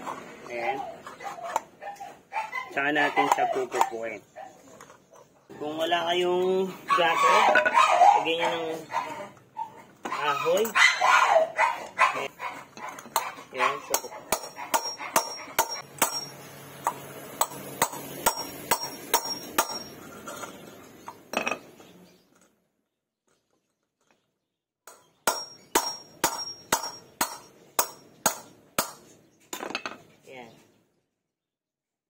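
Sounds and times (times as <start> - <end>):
hammer striking metal: 13.9 - 20.0, 24.9 - 29.7.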